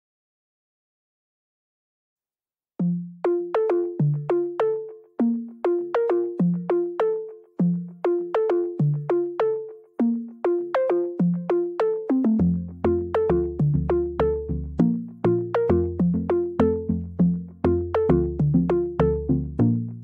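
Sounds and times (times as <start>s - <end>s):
bouncy synthesizer melody: 2.8s - 20.0s.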